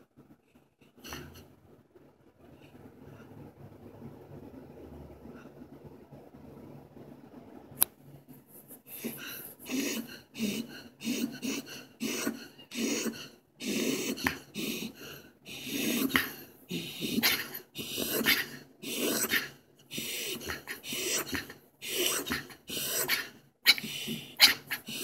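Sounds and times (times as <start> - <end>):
dog snuffling breaths: 8.6 - 25.0.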